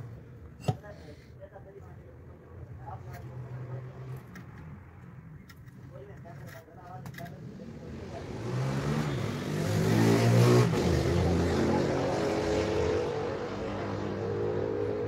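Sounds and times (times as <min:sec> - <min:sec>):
vehicle engine revving: 0:07.4 - 0:15.0.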